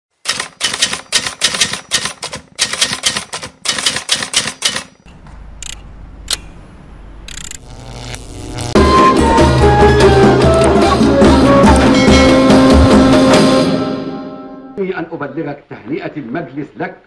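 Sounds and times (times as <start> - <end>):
typewriter keys clacking: 0.2 - 5.0
sharp clicks: 0.2 - 6.5, 7.3 - 7.6.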